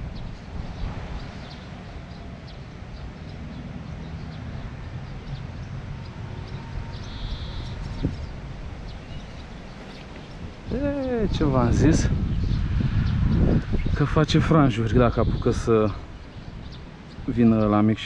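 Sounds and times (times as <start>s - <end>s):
wind on microphone: 0.0s - 18.0s
faint bird chirps: 0.1s - 11.3s
bird call: 6.0s - 11.2s.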